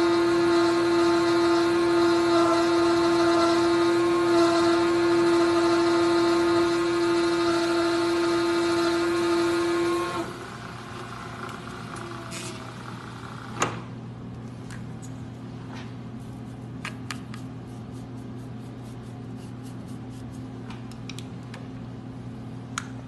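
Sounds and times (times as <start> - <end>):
milling machine humming: 0.0 - 13.8.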